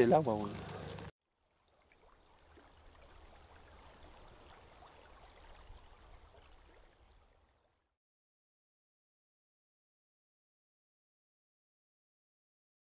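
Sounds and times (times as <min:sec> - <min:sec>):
river low rumble: 0:00.0 - 0:07.8
water trickling hiss: 0:00.0 - 0:07.8.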